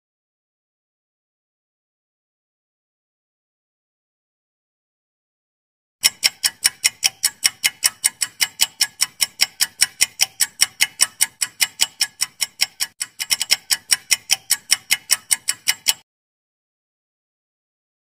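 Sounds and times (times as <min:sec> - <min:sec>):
clock ticking: 0:06.0 - 0:16.0.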